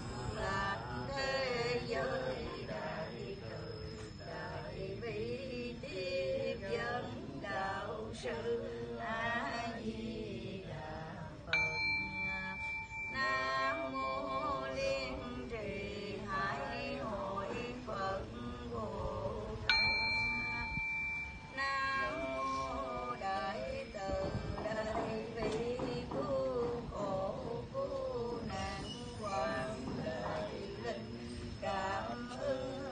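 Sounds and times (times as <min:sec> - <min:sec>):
voices chanting: 0:00.0 - 0:32.9
small bell ringing: 0:11.5 - 0:17.3, 0:18.6 - 0:27.5.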